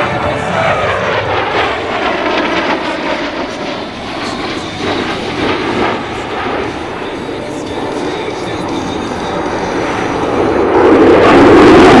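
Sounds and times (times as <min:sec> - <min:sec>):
loud jet engine roar: 0:00.0 - 0:12.0.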